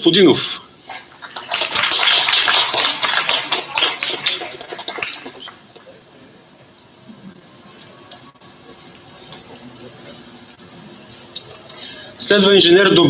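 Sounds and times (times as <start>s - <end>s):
small crowd applauding: 0.9s - 6.2s.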